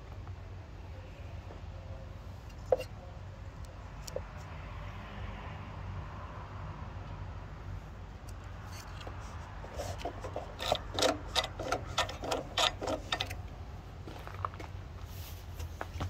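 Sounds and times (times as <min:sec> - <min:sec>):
lawn mower engine turned over by hand: 0:09.7 - 0:13.6.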